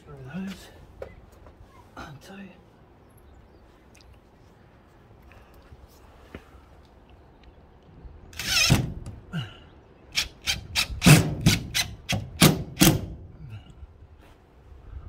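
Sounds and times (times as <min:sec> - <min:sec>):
cordless drill driving screw: 0:08.4 - 0:08.9.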